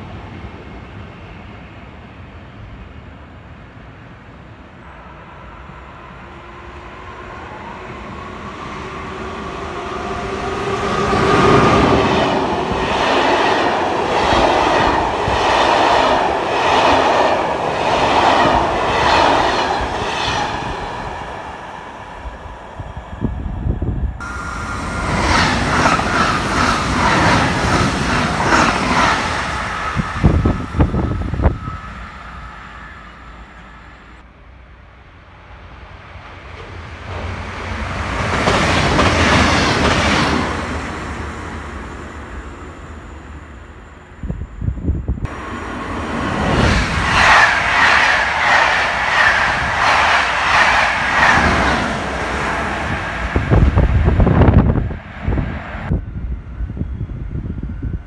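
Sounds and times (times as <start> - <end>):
railcars rushing past: 0.0 - 58.0
locomotive whine: 4.7 - 34.3.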